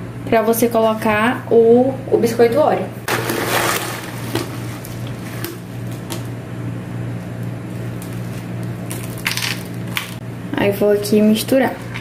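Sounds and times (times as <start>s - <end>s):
low machine hum: 0.0s - 12.0s
plastic packet crinkling: 7.7s - 10.2s.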